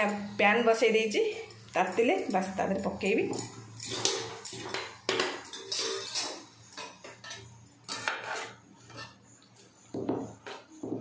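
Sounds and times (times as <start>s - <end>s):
metal spatula scraping a metal pan: 1.3s - 9.4s.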